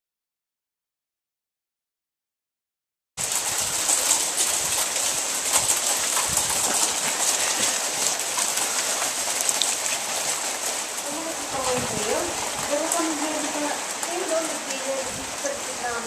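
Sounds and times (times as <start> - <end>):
hail and rain hissing: 3.2 - 16.0
hailstones ticking: 3.2 - 16.0.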